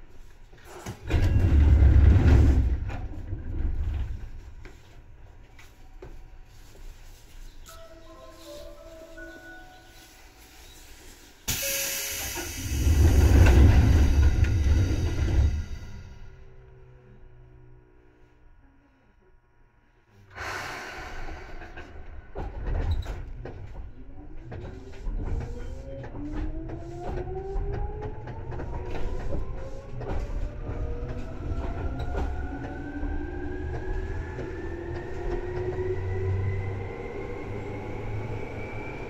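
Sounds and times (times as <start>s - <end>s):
wheels clicking on rail joints: 21.6s - 36.4s.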